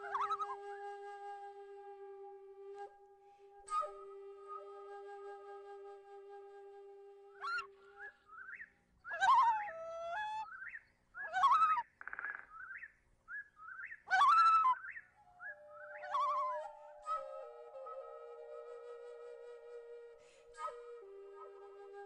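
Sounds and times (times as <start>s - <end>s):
soft flute music: 0.0s - 10.8s, 14.1s - 22.0s
birdsong chirps and whistles: 7.4s - 18.7s.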